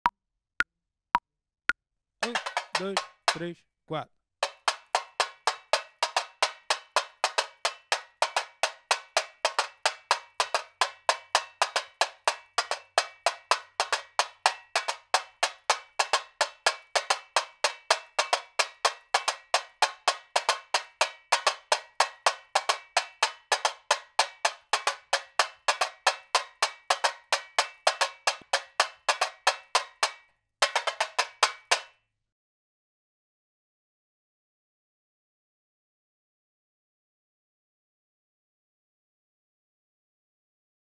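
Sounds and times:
frame drum struck with stick: 2.2s - 3.5s, 4.4s - 31.9s.

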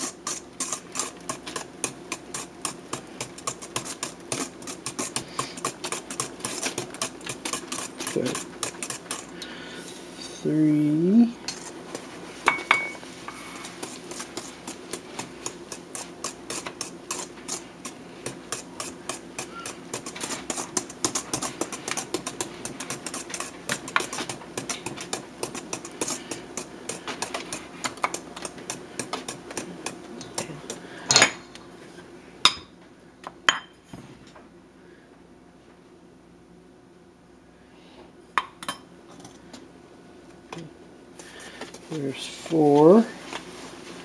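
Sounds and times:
whisk clicking against metal bowl: 0.0s - 9.4s, 13.8s - 30.8s.

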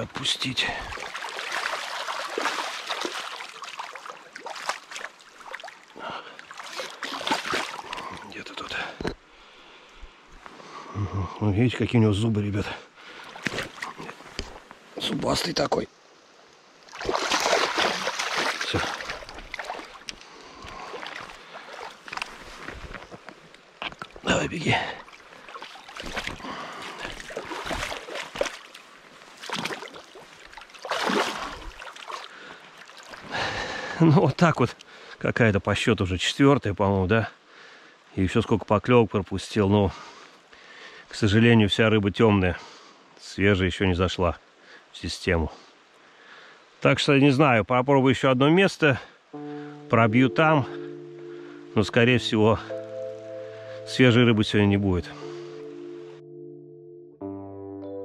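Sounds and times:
river running: 0.0s - 56.3s
fish splashing in shallow water: 0.9s - 8.3s, 16.8s - 22.6s, 25.0s - 33.3s.

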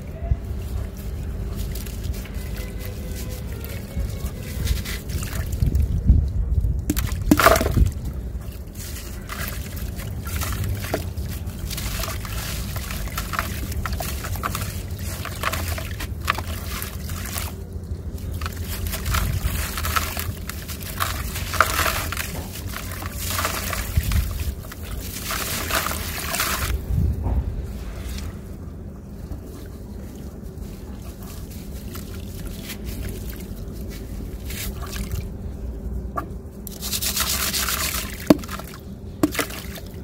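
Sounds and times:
hands crushing dry soil: 0.3s - 35.4s, 36.6s - 40.0s
grit splashing into water: 6.8s - 26.8s, 36.7s - 40.0s.

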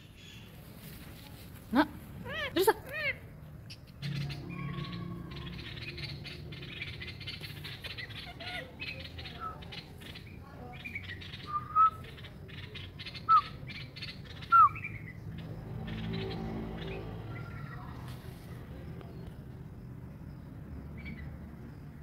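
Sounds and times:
parakeet calls: 2.2s - 17.8s.

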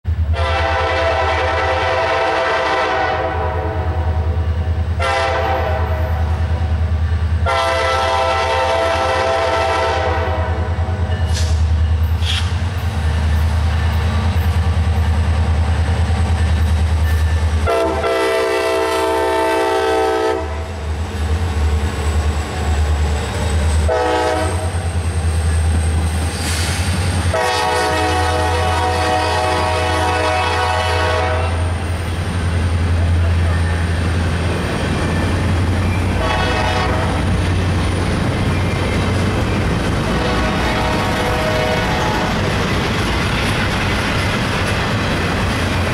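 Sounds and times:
locomotive air horn blasts: 0.3s - 6.8s, 7.4s - 11.6s, 17.6s - 20.8s, 23.8s - 24.8s, 27.3s - 31.8s, 36.1s - 37.3s, 40.1s - 42.3s
locomotive engine rumble: 10.3s - 45.9s.

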